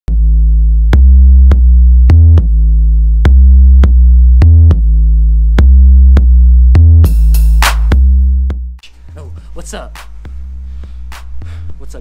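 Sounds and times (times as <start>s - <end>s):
deep synth bass: 0.1s - 11.8s
drum machine beat: 0.9s - 2.6s, 5.6s - 11.5s.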